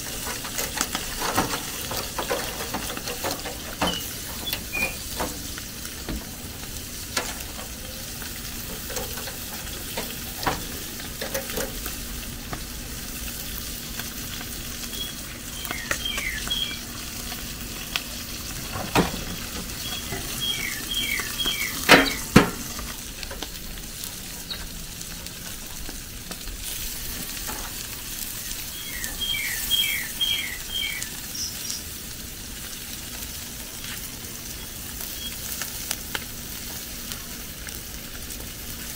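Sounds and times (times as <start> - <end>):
fish sizzling in hot oil: 0.0 - 38.9
bird chirping: 3.8 - 5.1, 14.9 - 16.9, 19.8 - 22.4, 28.4 - 31.8.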